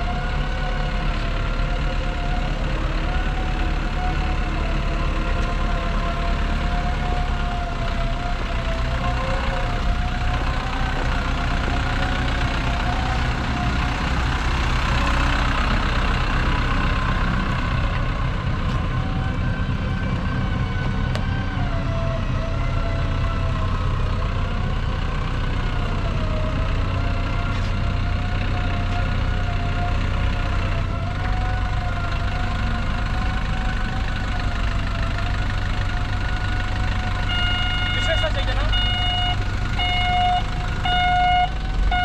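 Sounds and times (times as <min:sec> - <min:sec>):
diesel truck engine idling: 0:00.0 - 0:42.0.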